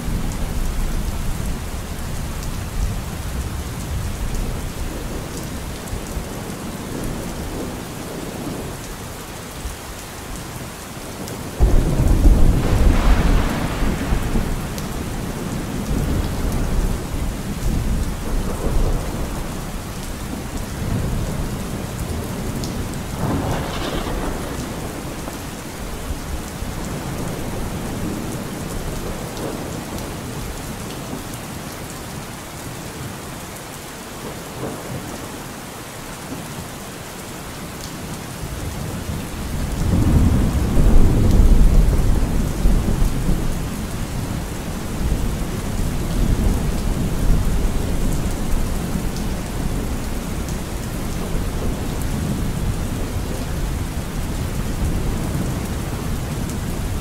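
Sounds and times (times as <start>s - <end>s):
steady rain: 0.0s - 57.0s
thunder rumbling: 11.5s - 30.2s, 38.6s - 57.0s.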